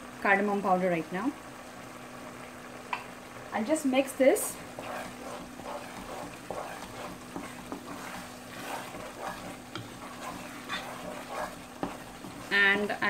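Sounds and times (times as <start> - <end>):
syrup simmering hiss: 0.0 - 13.0
wooden spoon scraping a pot: 4.5 - 13.0.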